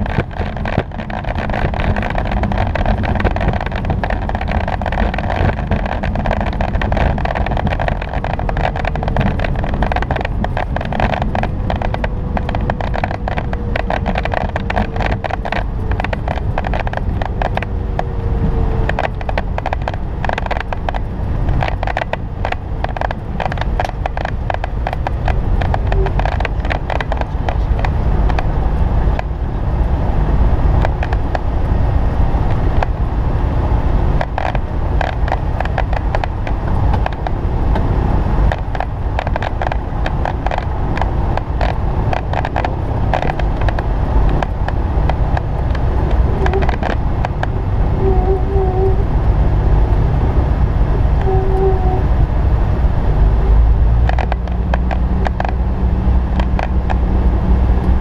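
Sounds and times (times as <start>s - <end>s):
rattling clicks: 0.0s - 18.2s, 18.8s - 29.4s, 34.2s - 47.6s, 54.0s - 55.6s
aircraft engine and airflow rumble: 0.0s - 58.0s.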